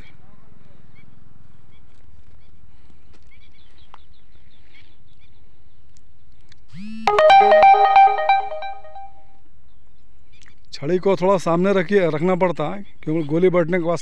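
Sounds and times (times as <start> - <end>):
electronic ringtone melody: 7.1 - 9.1.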